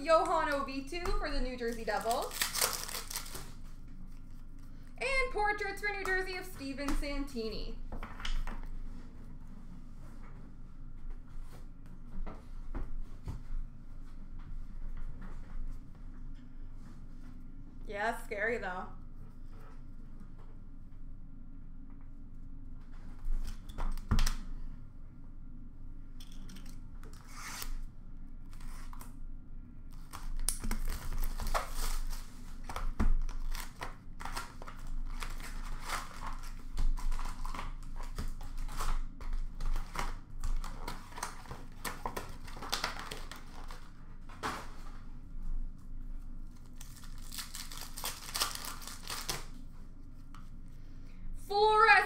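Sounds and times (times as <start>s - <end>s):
wrappers ripping and crinkling: 1.3s - 3.6s, 30.0s - 44.5s, 46.4s - 49.6s.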